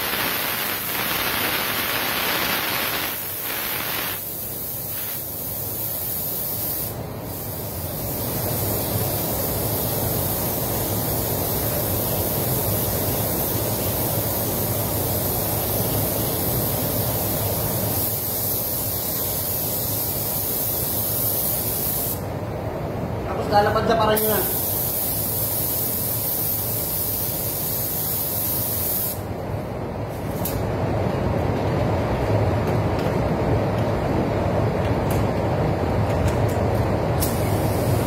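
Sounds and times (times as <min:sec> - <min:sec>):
paint spray gun hissing: 0:00.0 - 0:22.2, 0:24.2 - 0:29.2, 0:37.2 - 0:38.0.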